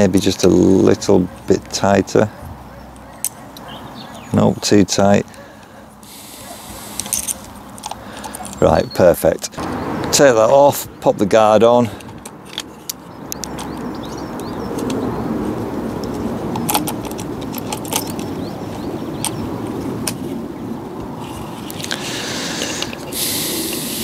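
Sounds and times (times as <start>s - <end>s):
scraping hiss: 6.0s - 8.5s, 21.4s - 24.0s
clicks and rattles of small parts: 6.9s - 9.6s, 11.9s - 13.9s, 16.0s - 18.5s, 21.2s - 23.9s.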